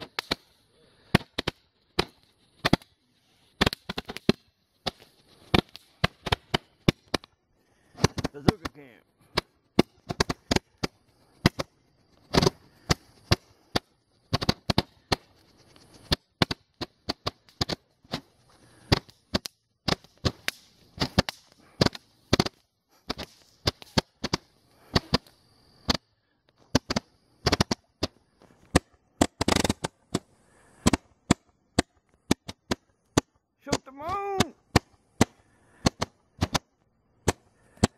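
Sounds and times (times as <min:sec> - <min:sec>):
faint high hiss: 0:00.0 - 0:28.6
fireworks popping and cracking: 0:00.0 - 0:37.9.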